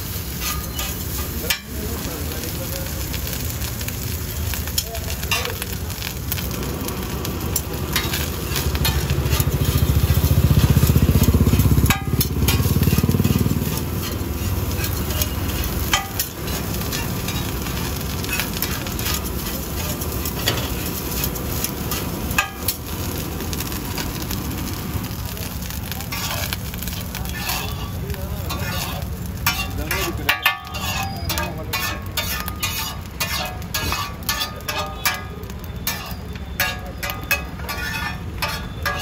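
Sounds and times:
rice sizzling in a wok: 0.0 - 39.0
metal spatula scraping pan: 0.2 - 1.7, 7.6 - 22.8, 26.1 - 39.0.

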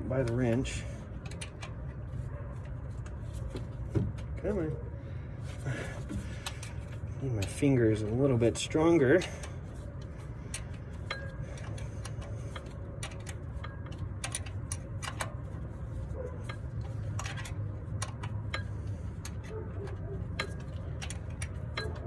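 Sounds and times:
low steady rumble: 0.0 - 22.0
wrench clicking on metal bolts: 0.1 - 2.0, 6.4 - 15.7, 16.4 - 22.0.

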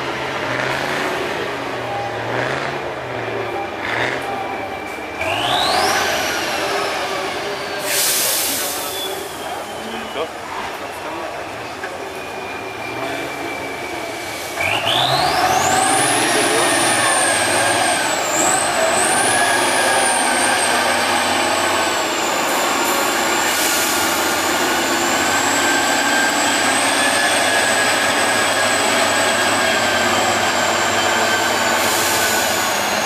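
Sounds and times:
truck engine running: 0.0 - 9.8, 10.6 - 33.0.

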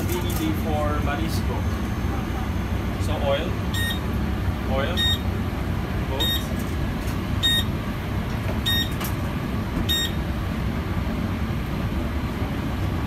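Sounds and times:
gas burners and ventilation rumble: 0.0 - 13.0
short high electronic beeps: 3.7 - 4.0, 5.0 - 5.2, 6.2 - 6.5, 7.4 - 7.7, 8.7 - 8.9, 9.9 - 10.2.

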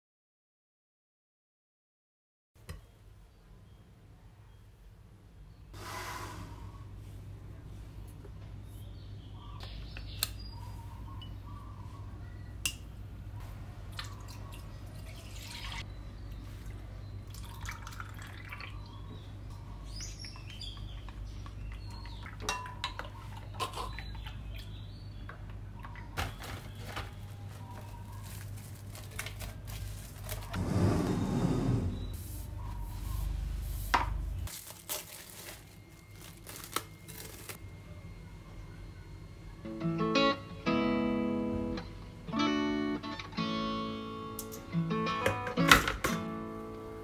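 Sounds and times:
liquid pouring into a glass bowl: 17.3 - 18.8
plastic cling wrap crinkling: 26.2 - 30.6, 34.4 - 37.6.

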